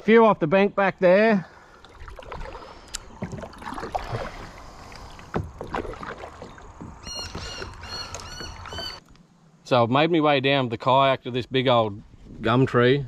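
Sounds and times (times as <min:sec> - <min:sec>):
paddle splashing in water: 0:01.5 - 0:09.0
high chirping: 0:07.0 - 0:09.0.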